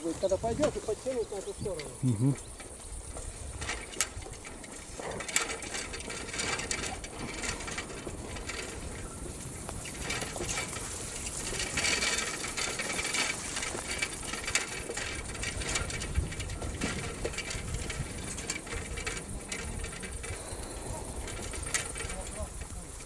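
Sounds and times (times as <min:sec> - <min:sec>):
footsteps through grass: 0:00.0 - 0:05.0, 0:08.4 - 0:15.4
small clicks and rubbing: 0:00.3 - 0:23.0.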